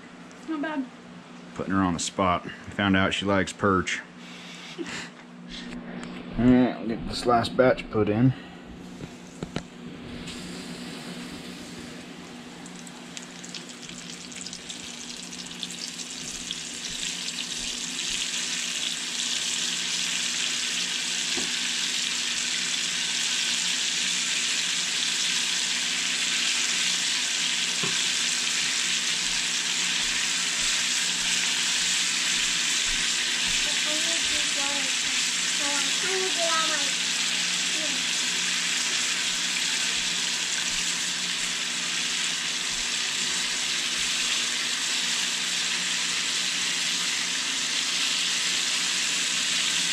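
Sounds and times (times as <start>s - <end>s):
fish frying in hot oil: 12.6s - 49.9s.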